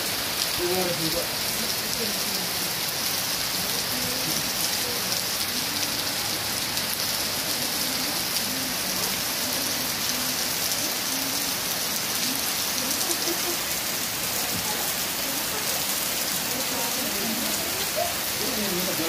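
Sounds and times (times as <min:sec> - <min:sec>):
steady rain falling: 0:00.0 - 0:19.0
water running off eaves: 0:00.0 - 0:19.0.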